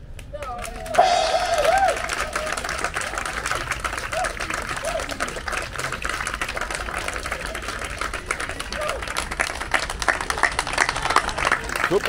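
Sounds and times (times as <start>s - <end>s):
voices: 0.6s - 9.1s
audience applause: 0.6s - 12.0s.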